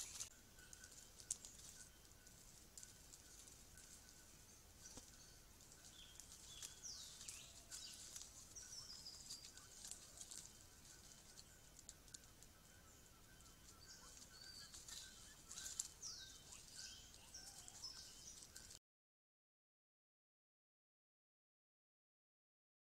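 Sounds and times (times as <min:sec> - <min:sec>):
faint steady tone: 0:00.0 - 0:18.8
small birds calling: 0:00.0 - 0:18.8
faint clicks: 0:11.3 - 0:12.5.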